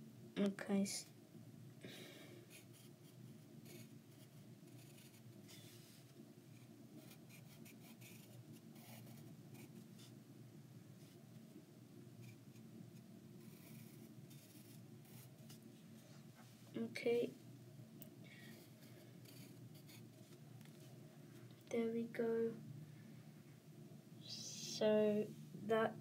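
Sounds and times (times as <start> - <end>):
low steady hum: 0.0 - 26.0
pencil scratching on paper: 2.5 - 5.6, 7.0 - 10.1, 13.4 - 15.6, 18.6 - 20.1.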